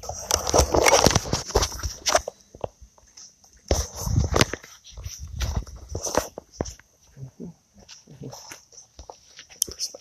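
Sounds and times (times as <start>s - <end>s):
footsteps on grass: 3.0s - 10.0s.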